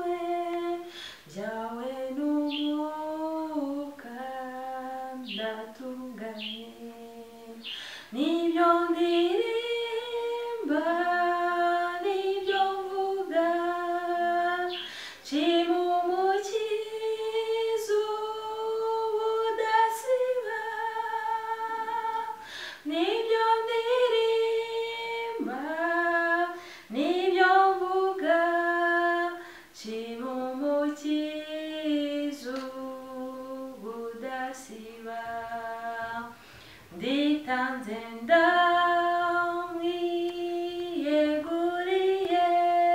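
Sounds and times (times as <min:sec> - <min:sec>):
woman singing a hymn: 0:00.0 - 0:42.9.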